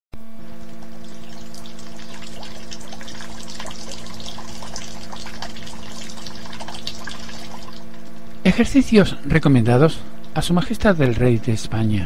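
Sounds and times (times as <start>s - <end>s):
low steady hum: 0.2s - 12.0s
water trickling and splashing: 0.6s - 8.1s.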